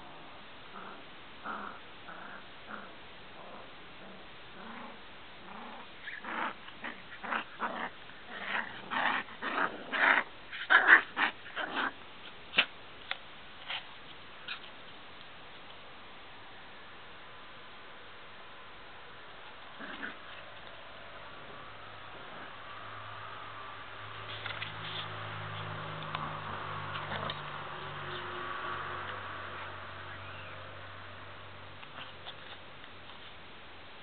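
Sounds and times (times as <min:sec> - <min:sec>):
small dogs growling and yapping: 0:00.0 - 0:12.8, 0:19.6 - 0:23.2, 0:24.3 - 0:30.6, 0:31.8 - 0:32.7.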